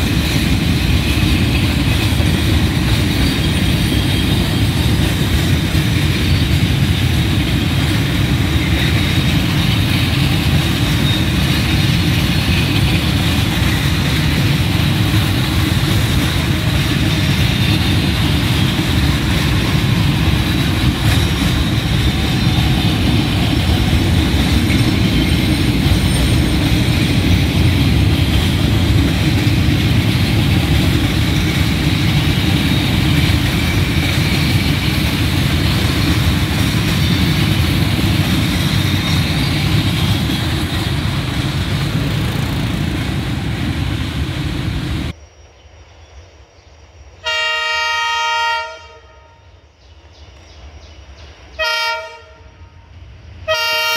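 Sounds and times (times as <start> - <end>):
train wheels on rails: 0.0 - 45.2
train horn: 47.2 - 49.6, 51.6 - 52.9, 53.5 - 53.9.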